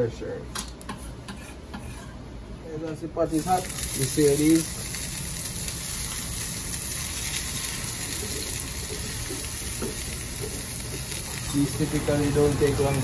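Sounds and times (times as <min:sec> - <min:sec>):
eggplant sizzling in oil: 0:03.3 - 0:13.0.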